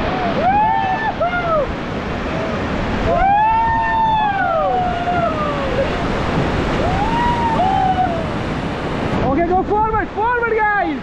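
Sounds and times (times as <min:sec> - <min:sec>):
rafters whooping: 0:00.0 - 0:01.8, 0:02.4 - 0:06.0, 0:06.7 - 0:08.5
whitewater rapids rushing: 0:00.0 - 0:11.0.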